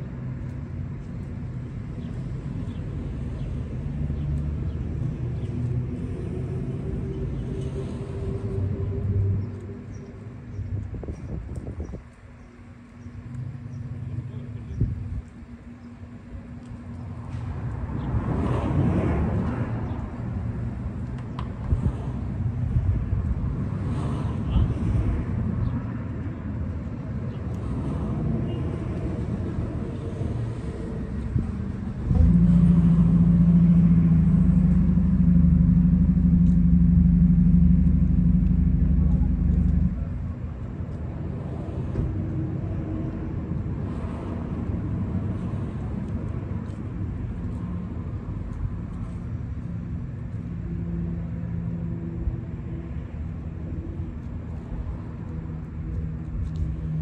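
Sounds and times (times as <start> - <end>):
quiet low rumble: 0.1 - 12.2, 27.6 - 50.5.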